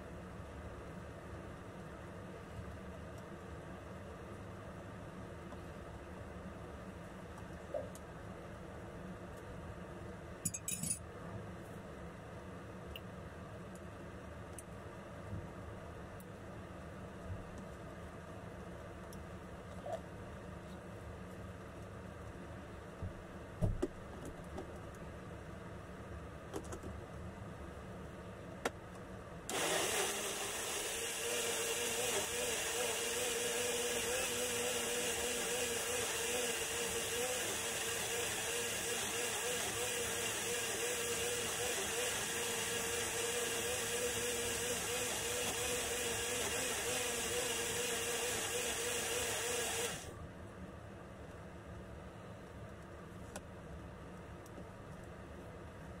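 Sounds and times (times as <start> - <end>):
blender motor running: 29.5 - 50.1.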